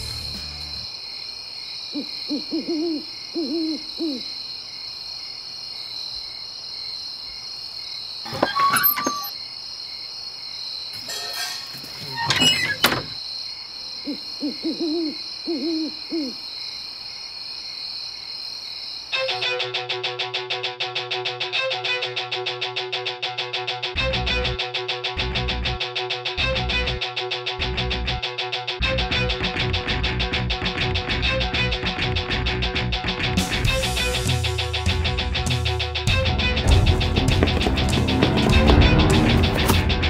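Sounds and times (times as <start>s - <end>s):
high-pitched insect chorus: 0.0s - 19.7s
owl hooting: 1.9s - 4.4s, 14.0s - 16.4s.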